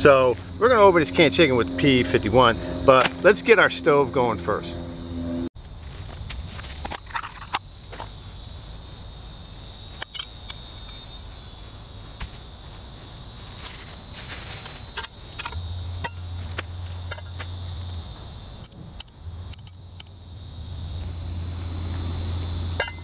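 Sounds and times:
insects trilling: 0.0 - 23.0.

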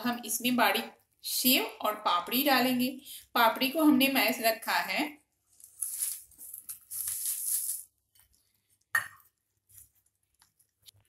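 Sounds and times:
dry snacks pouring into bowl: 6.9 - 7.8.

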